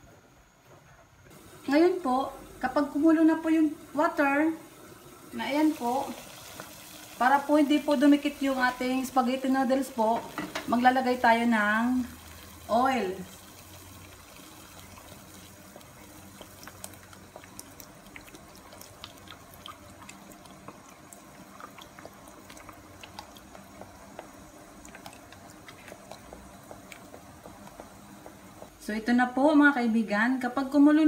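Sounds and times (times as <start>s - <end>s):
water coming to the boil: 1.3s - 28.9s
oil trickling into water: 13.3s - 27.5s.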